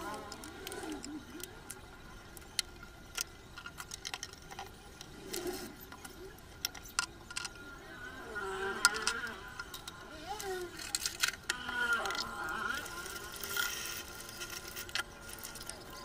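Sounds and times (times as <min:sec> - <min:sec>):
faint high hum: 0:00.0 - 0:16.0
faint wavering pitched sound: 0:07.3 - 0:16.0.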